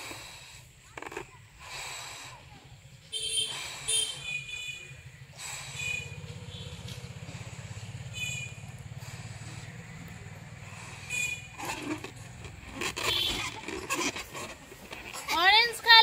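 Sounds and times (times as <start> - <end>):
engine droning: 3.5 - 15.0
short high squeaks: 10.8 - 16.0.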